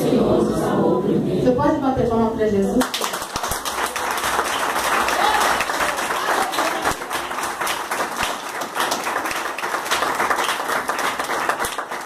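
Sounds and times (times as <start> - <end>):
crowd clapping: 2.8 - 12.0.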